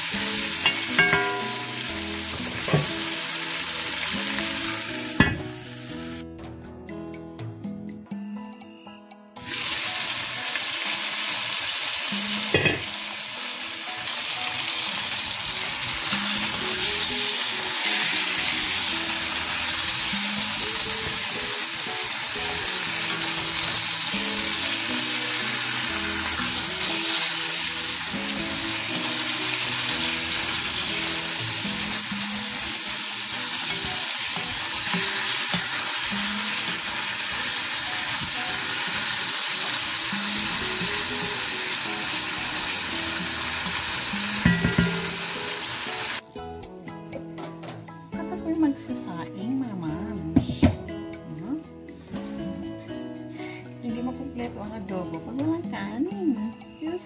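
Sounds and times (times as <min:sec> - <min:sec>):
meat sizzling in oil: 0:00.0 - 0:06.2, 0:09.4 - 0:46.2.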